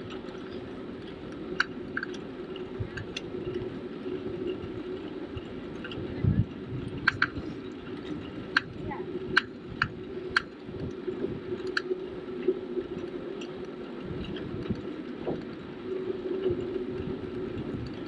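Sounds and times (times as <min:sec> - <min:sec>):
bicycle tyres rolling on asphalt: 0:00.0 - 0:18.0
sharp rattling clicks: 0:06.9 - 0:10.9.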